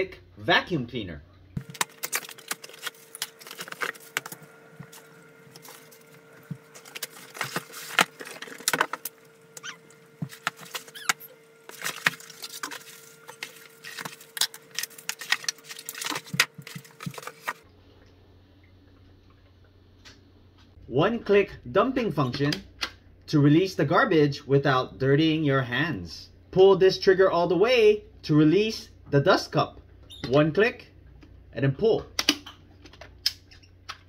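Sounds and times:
cardboard and plastic rustling: 1.6 - 17.6.

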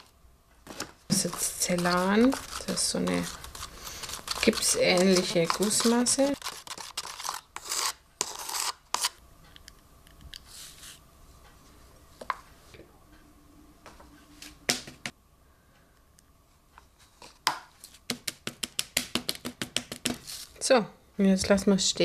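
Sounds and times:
spatula scraping in plastic cup: 1.1 - 9.2.

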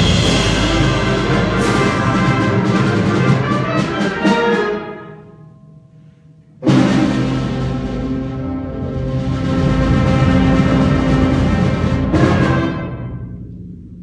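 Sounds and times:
symphonic band playing: 0.0 - 5.6, 6.5 - 14.0
timpani: 0.0 - 14.0.

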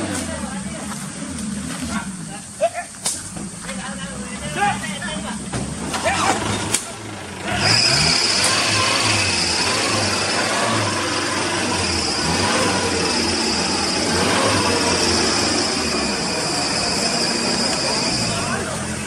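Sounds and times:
car engine idling: 0.0 - 19.0
high-pitched whine: 7.7 - 19.0.

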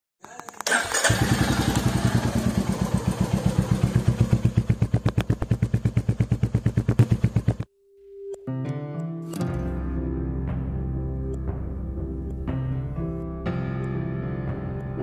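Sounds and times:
motorcycle engine idling: 0.7 - 7.7.

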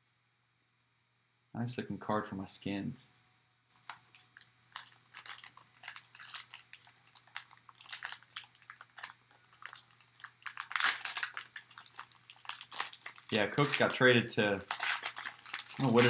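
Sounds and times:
foil wrapper crinkling: 3.7 - 16.0.

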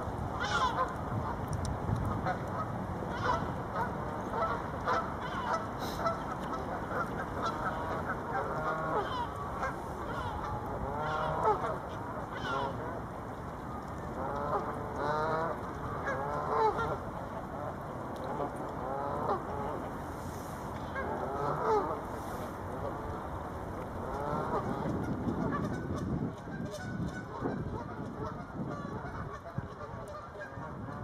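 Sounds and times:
geese honking: 0.4 - 1.0, 2.2 - 13.0, 14.1 - 17.0, 18.3 - 19.9, 20.8 - 22.2.

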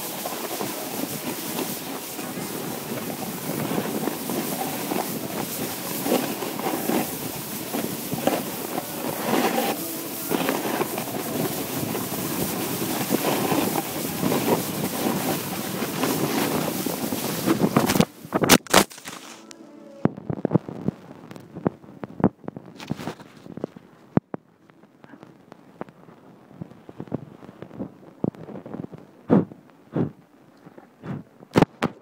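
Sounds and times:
wind on microphone: 0.0 - 18.6, 20.0 - 23.9
skis scraping on packed snow: 0.0 - 19.5.

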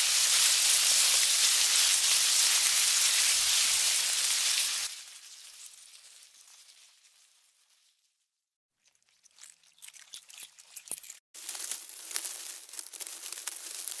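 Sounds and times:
ants chewing crackle: 8.8 - 14.0.

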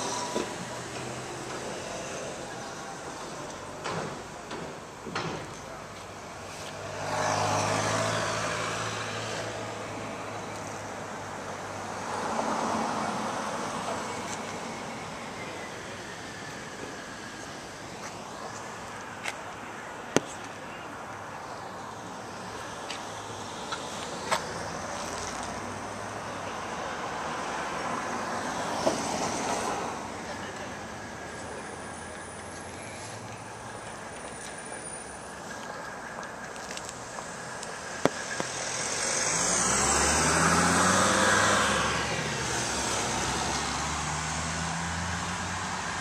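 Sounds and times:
passing vehicles: 0.0 - 46.0
road noise: 0.0 - 46.0
vehicle passing: 6.6 - 10.3, 35.7 - 46.0.

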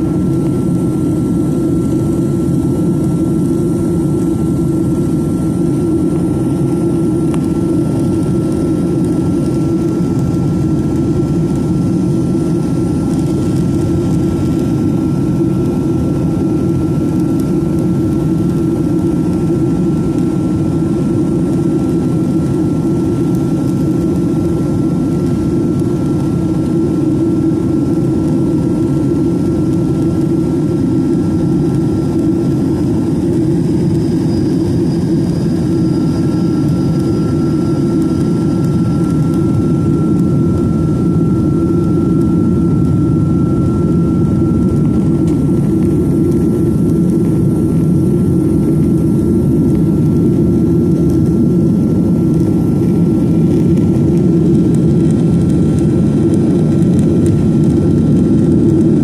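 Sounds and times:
jet engine roar in cabin: 0.0 - 59.0
thin steady whine: 0.0 - 59.0.

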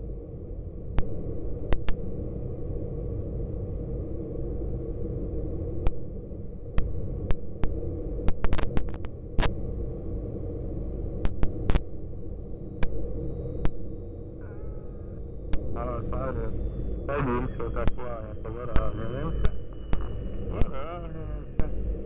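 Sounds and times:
faint high whine: 0.0 - 22.0
jet cockpit rumble and hiss: 0.0 - 22.0
sharp clicks and crackles: 6.8 - 9.6, 11.2 - 11.9.

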